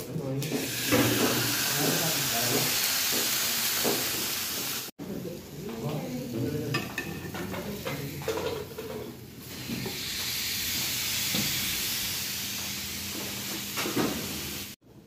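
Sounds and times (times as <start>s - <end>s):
chicken sizzling on grill pan: 0.6s - 4.9s, 9.4s - 14.8s.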